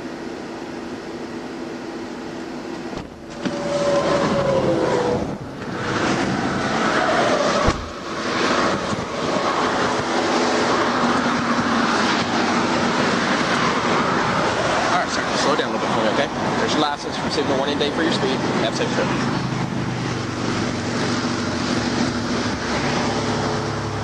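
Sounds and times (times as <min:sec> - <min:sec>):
highway traffic tyre noise: 0:00.0 - 0:24.0
thump: 0:07.6 - 0:07.9.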